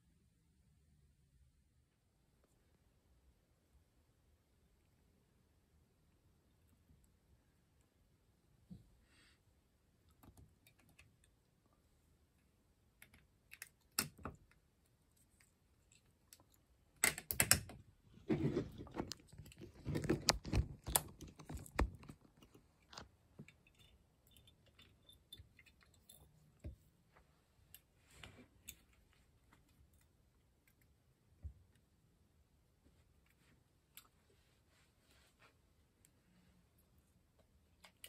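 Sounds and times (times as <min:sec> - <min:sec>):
metal parts clicking and clinking: 0:23.4 - 0:26.4.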